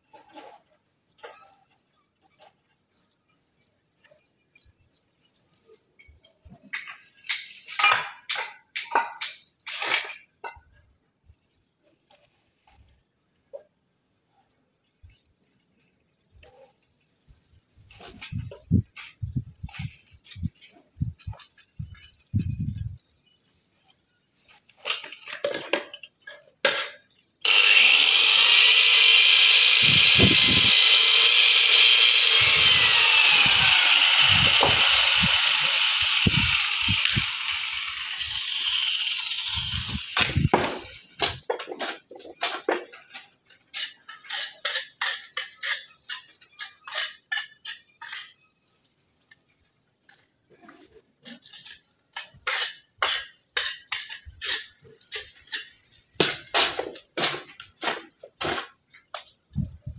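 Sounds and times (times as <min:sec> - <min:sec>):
angle grinder cutting stone: 0:27.4 - 0:41.5.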